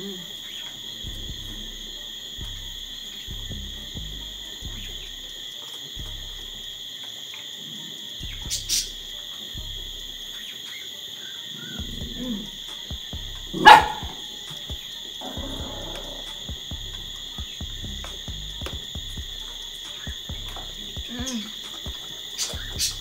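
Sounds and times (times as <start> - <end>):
crickets chirping: 0.0 - 23.0
dog barking: 13.6 - 14.3.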